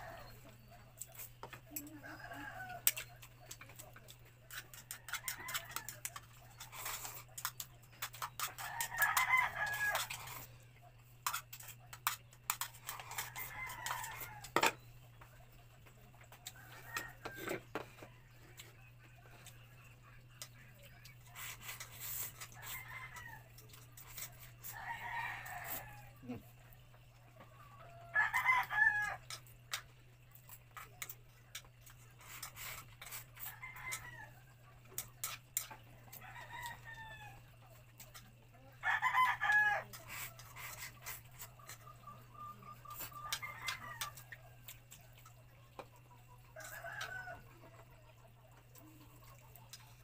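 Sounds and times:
roosters crowing: 0.0 - 3.3, 4.5 - 7.2, 8.0 - 10.6, 12.7 - 14.8, 16.3 - 18.6, 22.0 - 26.4, 27.4 - 29.5, 32.6 - 34.7, 36.0 - 37.8, 38.6 - 44.6, 46.4 - 47.8.

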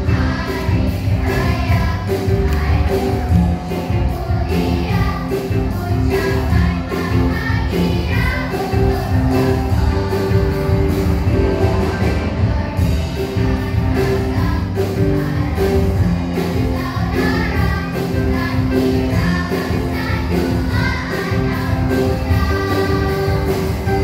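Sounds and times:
children's choir singing: 0.0 - 24.0
instrumental music with beat: 0.1 - 18.0.

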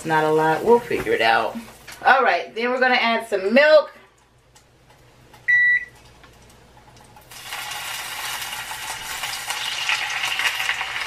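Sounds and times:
short electronic beep: 5.5 - 5.9
milk sizzling in hot butter: 7.2 - 11.0.

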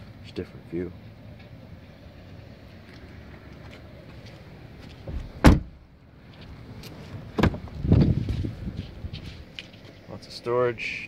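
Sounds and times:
car door slamming shut: 5.1 - 5.8, 7.4 - 8.0
door handling noise: 5.1 - 5.8.

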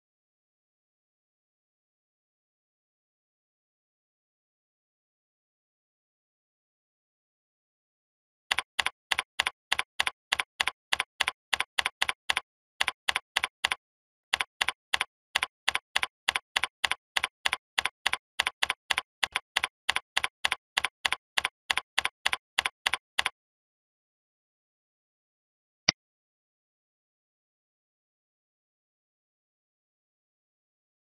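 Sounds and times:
keyboard typing: 8.5 - 23.4.

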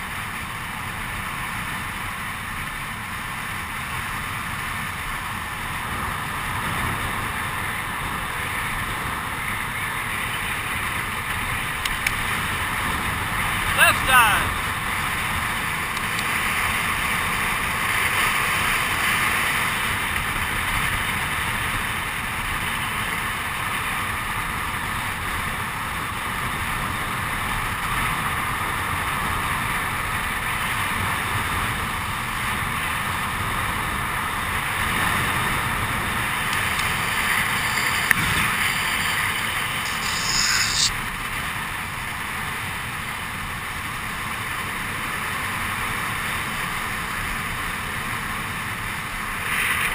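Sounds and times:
skateboard wheels rolling on asphalt: 14.8 - 49.9.

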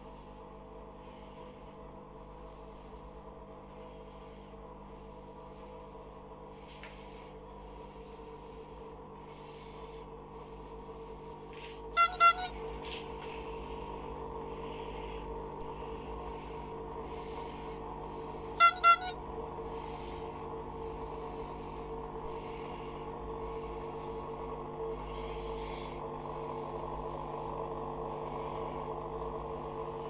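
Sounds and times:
steady low hum: 0.0 - 30.0
horn double toots: 11.9 - 12.7, 18.5 - 19.2.

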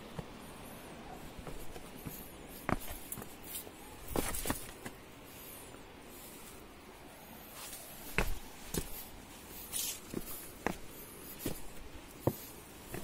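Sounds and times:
footsteps on rocky ground: 0.0 - 0.5, 1.2 - 5.0, 7.6 - 13.0.

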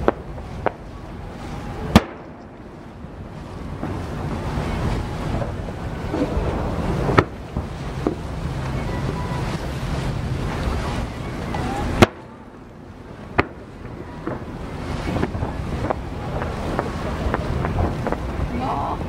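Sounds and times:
firework pops: 0.0 - 0.8, 1.9 - 2.6, 5.4 - 8.2, 11.5 - 12.3, 13.3 - 18.3
boat engine hum: 0.0 - 19.0
water noise: 0.0 - 19.0
wind: 0.0 - 19.0
sharp crack: 1.9 - 2.8, 7.0 - 8.3, 11.5 - 12.4, 13.3 - 18.4
firework bang: 1.9 - 3.0, 5.3 - 8.2, 11.9 - 12.4.

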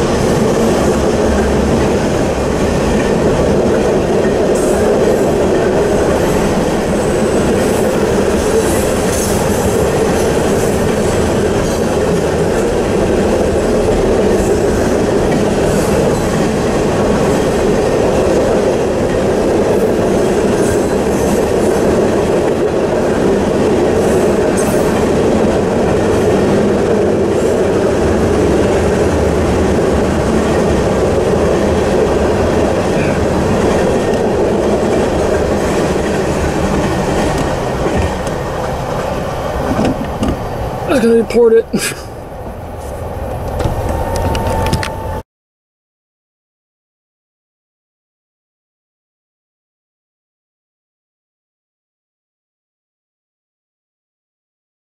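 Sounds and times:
train wheels rolling on rails: 0.0 - 45.2.

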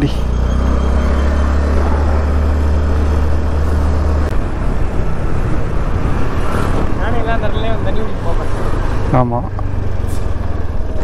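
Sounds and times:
road noise: 0.0 - 11.0
vehicle rumble: 0.0 - 11.0.

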